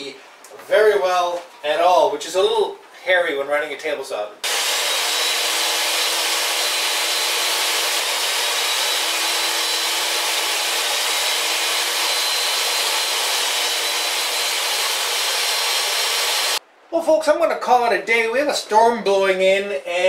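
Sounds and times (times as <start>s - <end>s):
table saw cutting wood: 4.4s - 16.6s.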